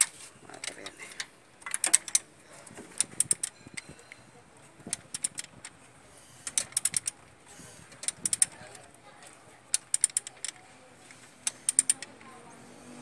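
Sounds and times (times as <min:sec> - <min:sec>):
ratchet wrench clicking: 0:01.6 - 0:02.2, 0:03.0 - 0:03.9, 0:04.9 - 0:05.7, 0:06.4 - 0:07.2, 0:07.9 - 0:08.8, 0:09.7 - 0:10.6, 0:11.4 - 0:12.1.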